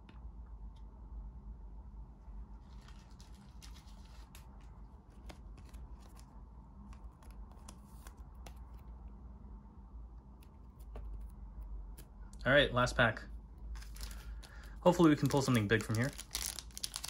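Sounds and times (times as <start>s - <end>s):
wrapper rustling: 2.5s - 6.3s, 13.8s - 17.0s
cards clicking and snapping: 5.1s - 8.8s.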